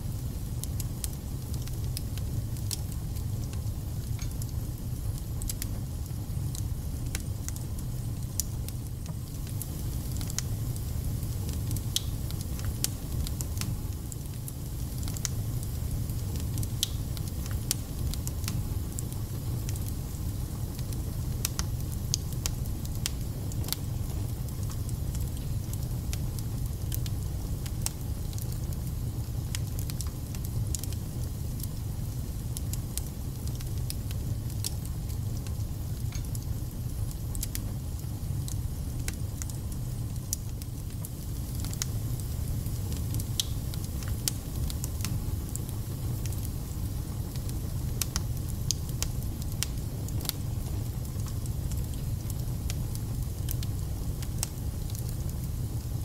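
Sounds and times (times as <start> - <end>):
wood fire crackling: 0.0 - 56.0.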